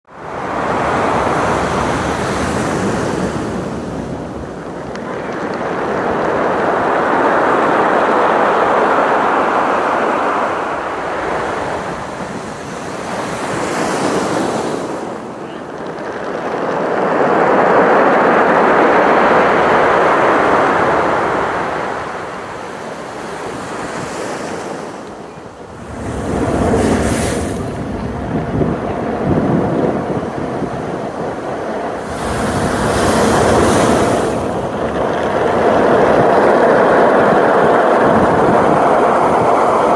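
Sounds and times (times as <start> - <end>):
ocean surf on a beach: 0.1 - 39.9
stones tumbling and clattering: 15.6 - 17.4.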